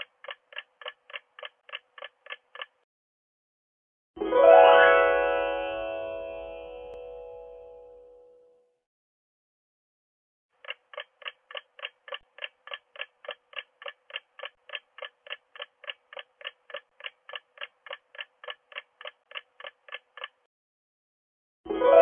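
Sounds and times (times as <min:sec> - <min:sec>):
clock ticking: 0:00.0 - 0:02.8, 0:10.6 - 0:20.5.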